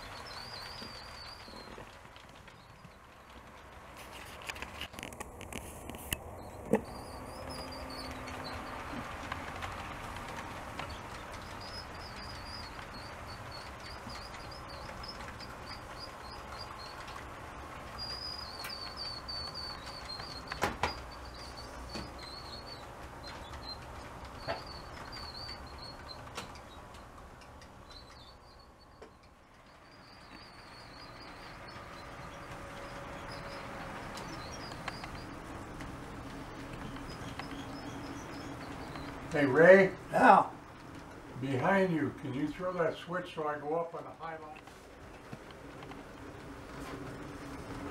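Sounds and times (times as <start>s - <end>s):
model train wheels rumbling: 0.0s - 5.6s, 6.2s - 47.9s
high squeak chirps: 6.4s - 9.0s, 10.8s - 17.2s, 17.8s - 35.5s, 36.8s - 40.0s.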